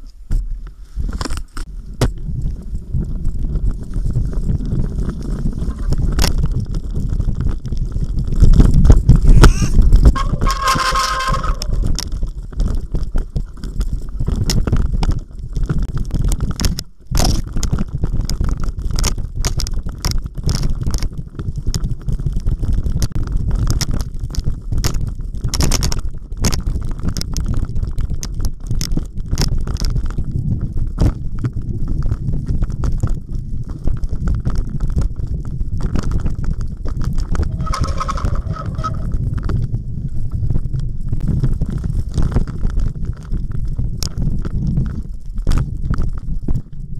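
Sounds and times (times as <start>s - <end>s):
wind rumble on microphone: 0.0s - 46.9s
mountain bike rattling: 1.1s - 46.9s
bike brake squeal: 9.2s - 11.9s, 37.4s - 39.2s.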